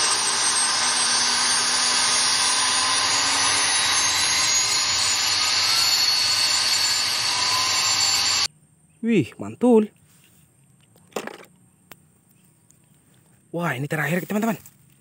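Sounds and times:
helicopter rotors rushing: 0.0s - 8.5s
helicopter turbine whine: 0.0s - 8.5s.

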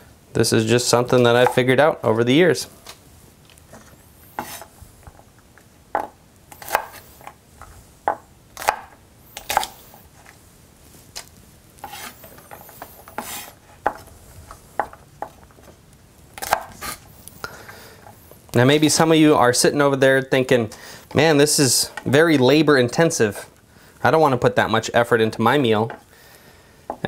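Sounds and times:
knife chopping on wooden board: 6.0s - 7.0s, 11.8s - 14.0s.

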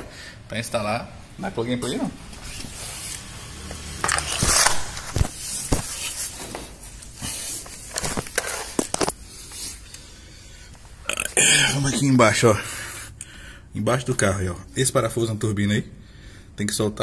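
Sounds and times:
camera handling noise: 4.0s - 6.1s, 7.9s - 9.2s.

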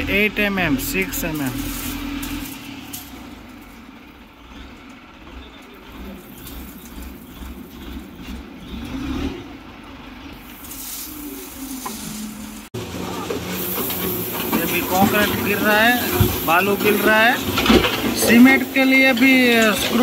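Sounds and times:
diesel engine rumbling: 0.0s - 20.0s
gravel pouring into steel bin: 1.2s - 3.5s, 6.0s - 8.1s, 10.5s - 20.0s.

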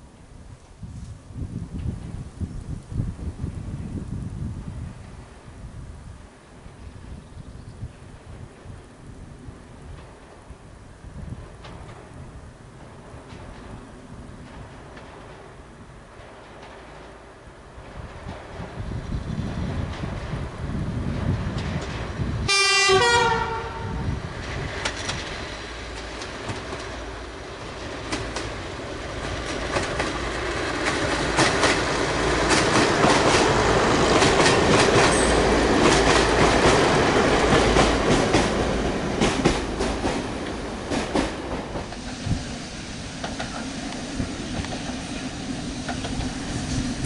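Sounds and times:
train wheels clicking over rail joints: 9.8s - 22.5s, 24.3s - 47.0s
two-tone train horn: 22.4s - 24.2s.

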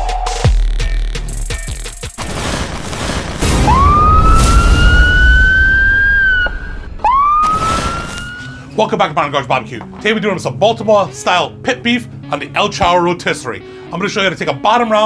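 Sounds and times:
rising siren-like whistle: 3.5s - 8.6s.

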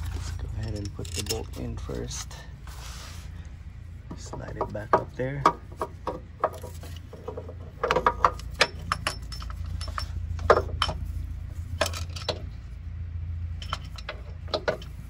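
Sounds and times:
metallic clinks and knocks: 0.0s - 1.9s, 4.1s - 12.7s, 13.5s - 15.0s.

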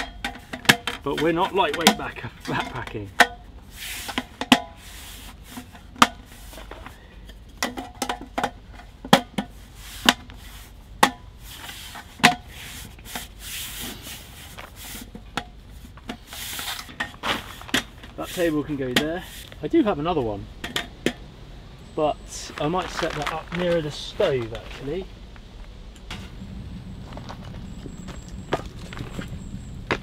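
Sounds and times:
soft rustling: 11.4s - 19.7s, 22.2s - 26.3s.

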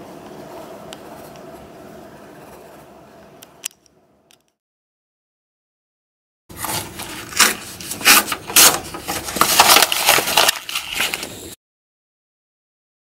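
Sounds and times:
paper being crumpled: 6.6s - 11.6s.

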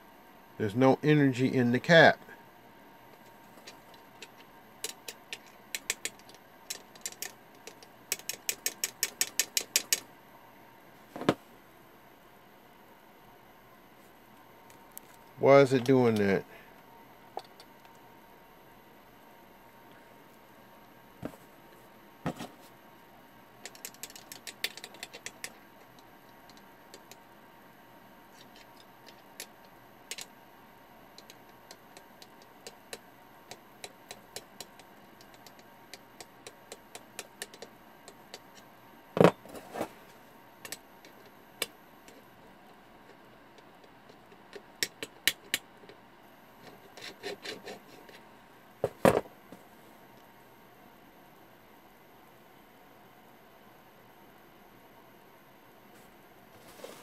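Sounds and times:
small clicks and taps: 3.2s - 10.1s, 23.6s - 27.2s, 28.4s - 30.3s, 31.2s - 38.7s
light scraping: 56.0s - 57.0s.

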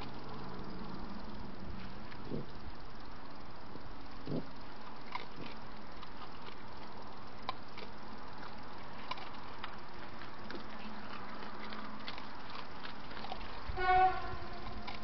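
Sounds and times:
animals chewing and crunching: 0.0s - 15.0s
steady hiss: 0.0s - 15.0s.

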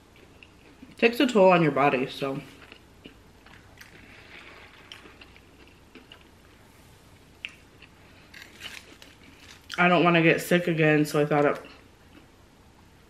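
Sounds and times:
chewing: 2.5s - 6.6s.

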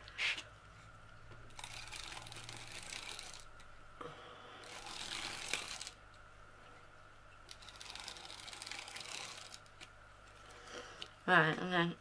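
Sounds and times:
tape pulled off roll crackling: 1.5s - 3.7s, 4.6s - 6.0s, 7.5s - 9.9s.

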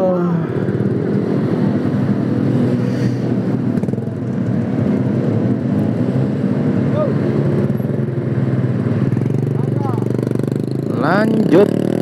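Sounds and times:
cars passing: 0.0s - 12.0s
motorcycle engine running: 3.4s - 12.0s.

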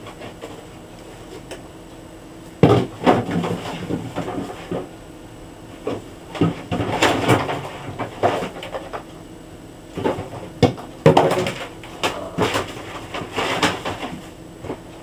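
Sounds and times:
items knocking in refrigerator: 2.6s - 4.9s, 5.8s - 9.1s, 9.9s - 14.8s.

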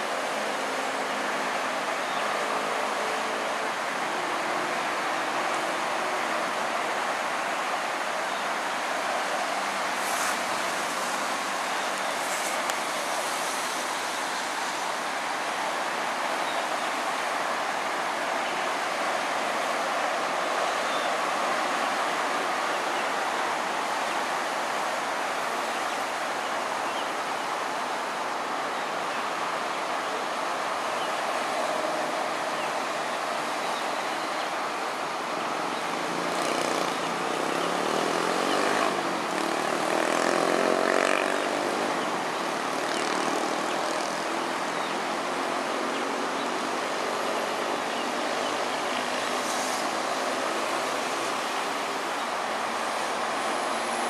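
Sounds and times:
road traffic noise: 0.0s - 54.0s
vehicle passing close by: 36.1s - 42.0s.

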